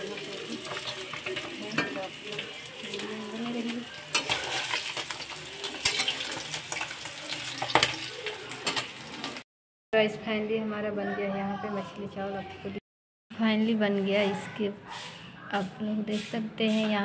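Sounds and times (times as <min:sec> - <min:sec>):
fish sizzling in hot oil: 0:00.0 - 0:09.4.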